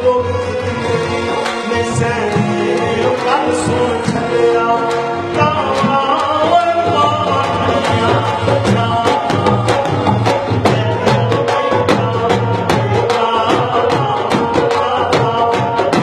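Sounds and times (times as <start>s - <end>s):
man singing into microphone: 0.0s - 16.0s
drum and percussion strokes: 0.4s - 16.0s.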